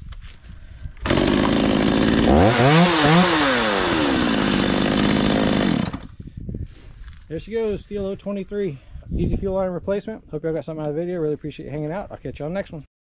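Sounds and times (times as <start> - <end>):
chainsaw engine revving: 1.0 - 6.1.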